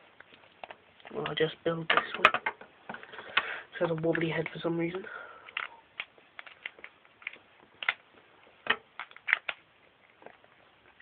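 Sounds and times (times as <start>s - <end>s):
plastic toy parts clicking: 5.5s - 8.0s.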